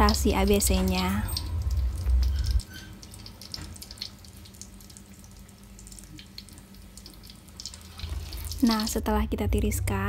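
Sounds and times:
paste sizzling in hot oil: 0.0 - 9.0
loud low rumble: 8.9 - 10.0.

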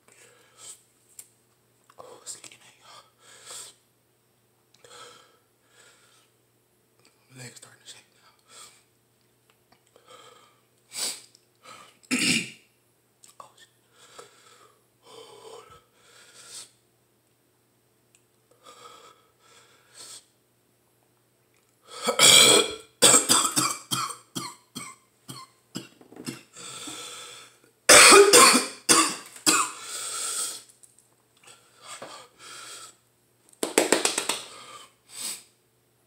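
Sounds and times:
man coughing hard: 12.1 - 12.6, 22.2 - 26.5, 27.9 - 29.8.

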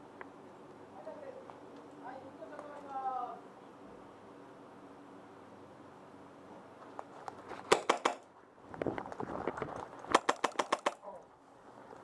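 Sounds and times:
airsoft rifle shots: 7.6 - 8.3, 10.1 - 11.2.

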